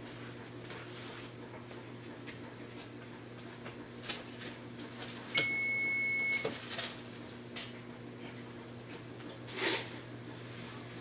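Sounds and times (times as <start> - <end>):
oven control panel beep: 5.3 - 6.6.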